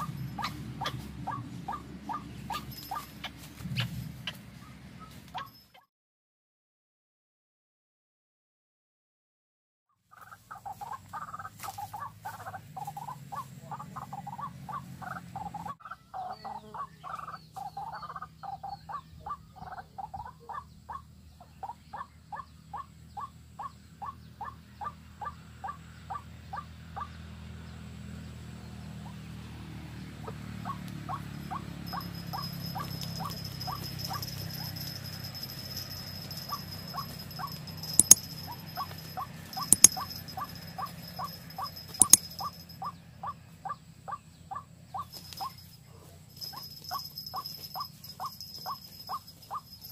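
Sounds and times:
waterhen calls: 0:00.0 - 0:04.4, 0:10.1 - 0:25.0, 0:30.2 - 0:35.0, 0:35.6 - 0:45.6.

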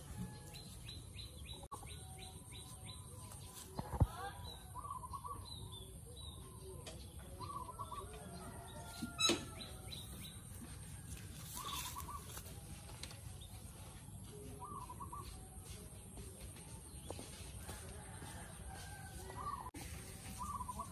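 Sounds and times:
bird calls: 0:11.6 - 0:12.6, 0:14.3 - 0:15.6, 0:19.4 - 0:20.9.

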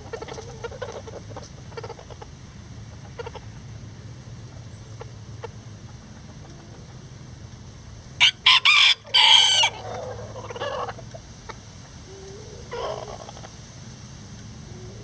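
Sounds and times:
quiet chicken call: 0:00.0 - 0:02.3, 0:08.2 - 0:13.6, 0:14.6 - 0:15.0
rooster crowing: 0:08.2 - 0:10.9.

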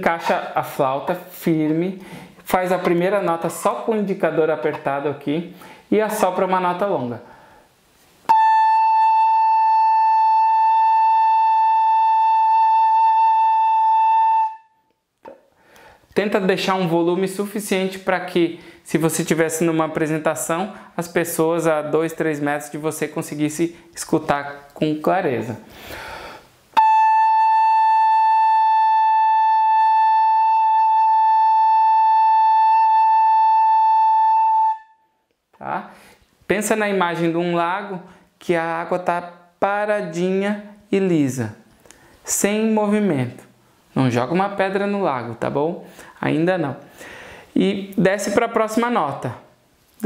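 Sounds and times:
fife holding a long note: 0:08.3 - 0:14.7, 0:26.8 - 0:34.9.

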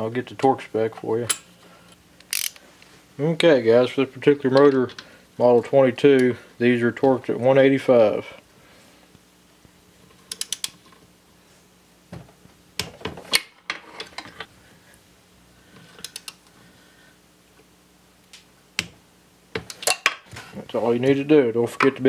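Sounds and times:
socket ratchet clicking: 0:02.2 - 0:02.6, 0:10.3 - 0:10.8.

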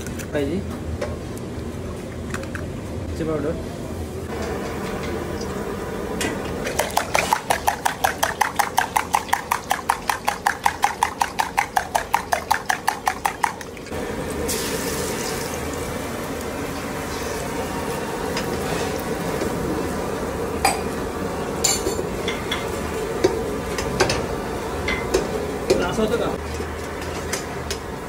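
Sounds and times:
egg sizzling in a pan: 0:06.6 - 0:24.0.

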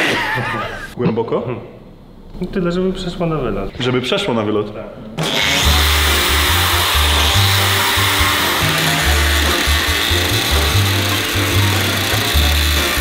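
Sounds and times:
angle grinder cutting metal: 0:05.2 - 0:13.0
background music with bass: 0:05.2 - 0:13.0.

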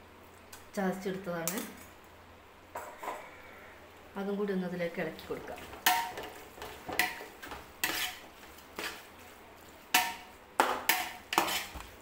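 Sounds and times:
metal spoon scraping a pot: 0:05.8 - 0:09.0, 0:10.9 - 0:11.8.

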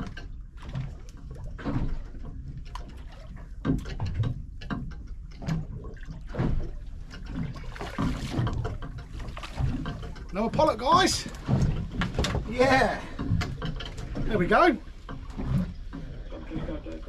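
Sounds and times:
water splashing against boat hull: 0:00.0 - 0:17.0.

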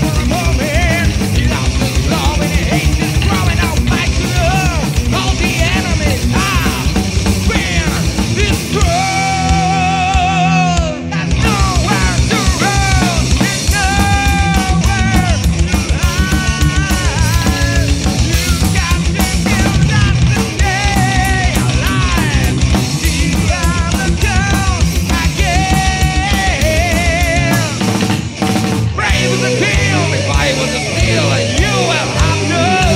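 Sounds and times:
fast driving drums: 0:00.0 - 0:32.9
high lead melody bending: 0:29.0 - 0:32.9.

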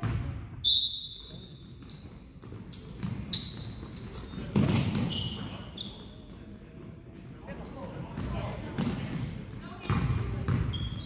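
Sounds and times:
basketball bouncing: 0:00.0 - 0:00.4, 0:02.4 - 0:05.1, 0:09.8 - 0:10.8
sneakers squeaking on gym floor: 0:00.0 - 0:11.0.

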